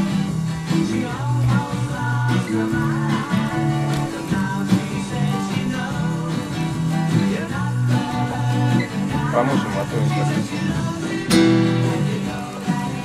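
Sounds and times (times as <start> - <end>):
strummed acoustic guitars: 0.0 - 13.0
bass guitar low notes: 9.0 - 12.3.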